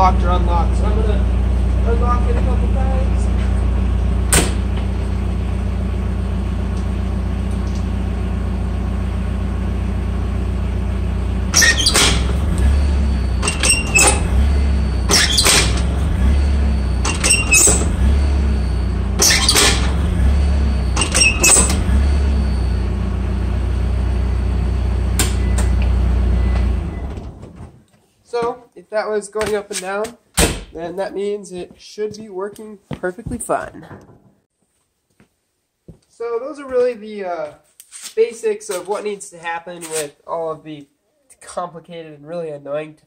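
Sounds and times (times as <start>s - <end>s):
diesel engine running: 0.0s - 27.8s
locking pins clunking: 11.5s - 16.4s, 17.0s - 18.5s, 19.2s - 22.0s.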